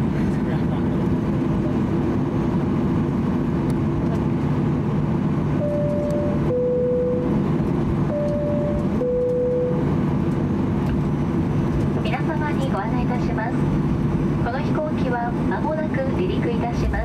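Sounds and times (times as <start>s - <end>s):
aircraft cabin rumble: 0.0s - 17.0s
two-tone cabin chime: 5.6s - 7.3s, 8.1s - 9.8s.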